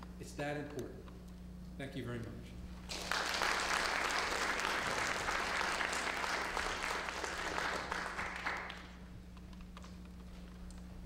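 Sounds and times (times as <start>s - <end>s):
audience applauding: 2.9s - 9.0s.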